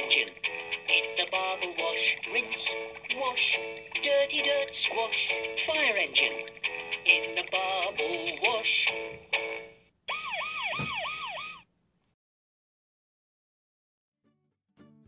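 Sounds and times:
electronic toy jingle: 10.1s - 11.6s
swooping siren sound effect: 10.1s - 11.7s.

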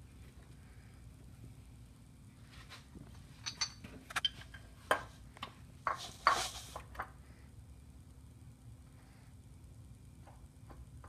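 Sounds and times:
metal engine parts clinking: 3.4s - 4.7s.

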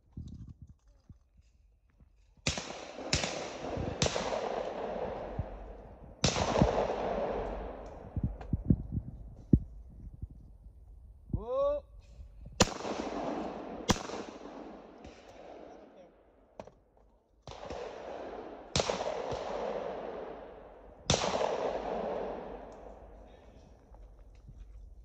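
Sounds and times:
shotgun shots with rolling echo: 2.4s - 9.0s, 12.6s - 16.7s, 17.4s - 23.9s.

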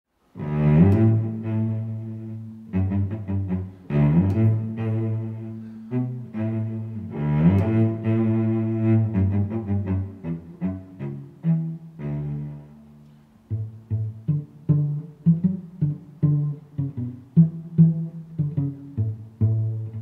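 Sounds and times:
low sustained music notes: 0.3s - 20.0s.

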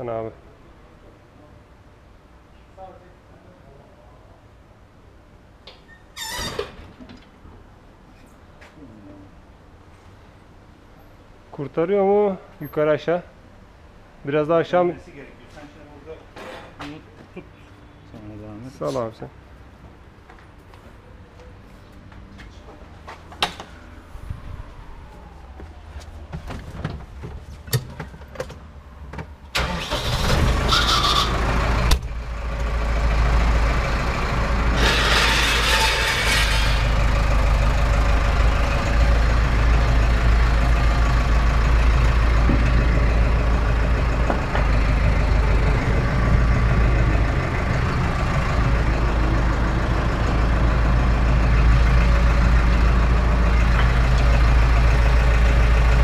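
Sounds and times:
tractor diesel engine: 23.5s - 56.0s.

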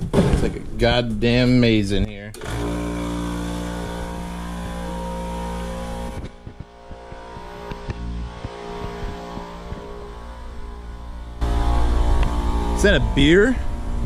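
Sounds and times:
air compressor humming: 2.4s - 14.0s
footsteps: 3.8s - 12.6s.

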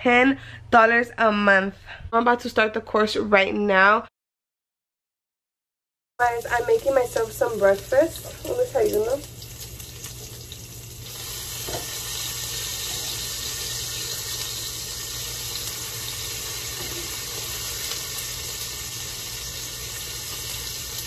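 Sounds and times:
bacon sizzling in a pan: 6.2s - 21.0s.

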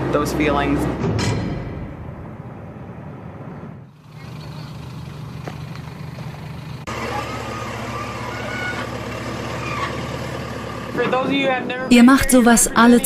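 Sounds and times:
bus engine hum: 0.0s - 13.0s
backhoe loader engine running: 3.9s - 13.0s
higher machine whines: 6.8s - 10.2s.

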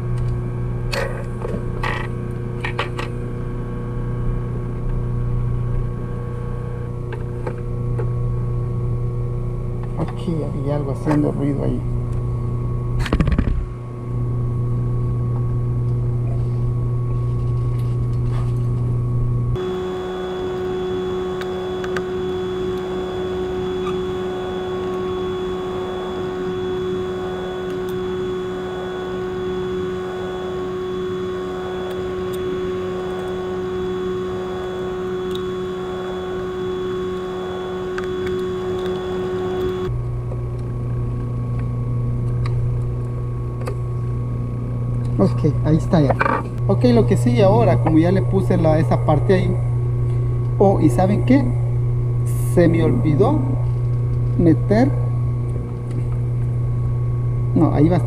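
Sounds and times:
electric motor humming: 18.1s - 58.0s.

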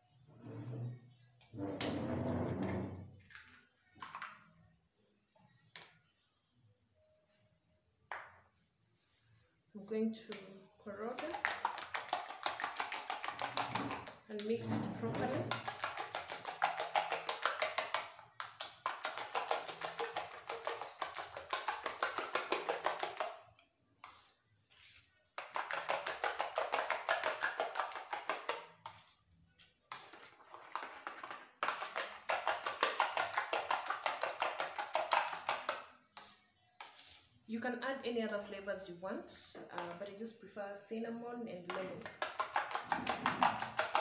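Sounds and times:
spoon beating eggs in plastic bowl: 10.3s - 37.4s, 41.7s - 44.0s.

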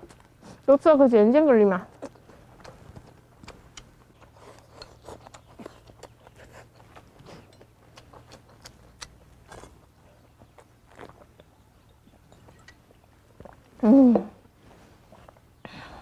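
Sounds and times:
chewing: 0.0s - 0.7s, 1.8s - 13.8s.

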